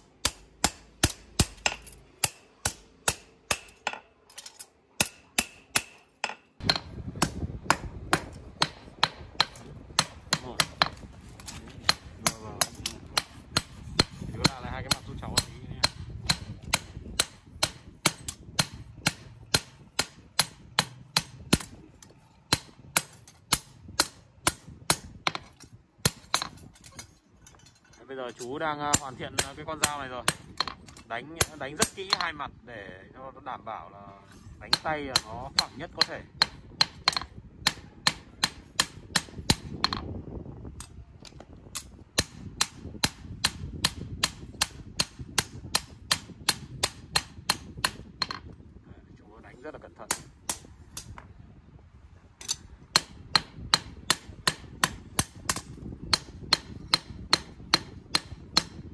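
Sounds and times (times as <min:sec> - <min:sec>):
hammer striking steel on anvil: 0:00.0 - 0:32.4, 0:34.3 - 0:40.0, 0:41.8 - 0:48.4, 0:50.1 - 0:51.1, 0:52.4 - 0:58.8.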